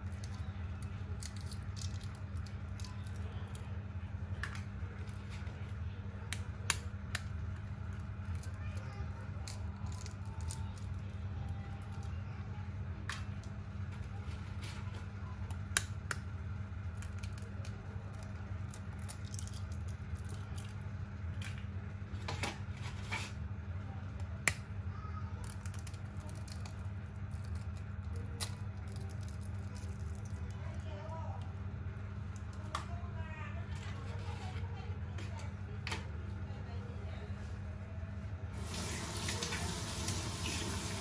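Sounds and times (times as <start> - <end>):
steady low hum: 0.0 - 41.0
knife cracking eggshells: 0.1 - 3.3, 16.9 - 20.8, 25.4 - 30.4.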